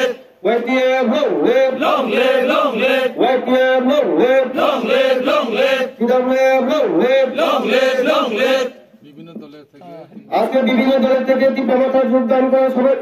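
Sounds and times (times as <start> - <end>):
men chanting in unison: 0.0 - 0.3, 1.2 - 8.8.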